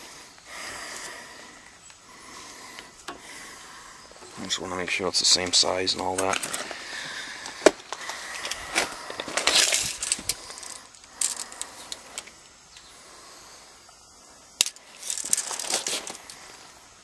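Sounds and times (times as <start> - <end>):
tape measure clicking and rattling: 14.6 - 16.4.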